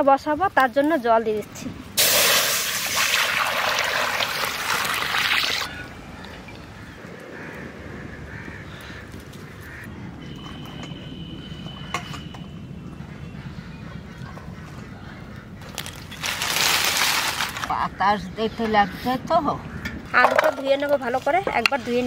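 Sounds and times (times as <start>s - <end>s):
water splashing into iron pan: 2.0s - 5.7s.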